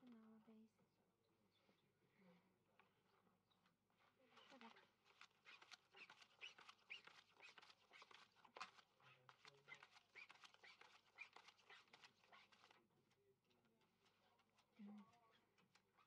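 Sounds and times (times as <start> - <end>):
playing cards clicking and sliding: 4.4 - 12.9.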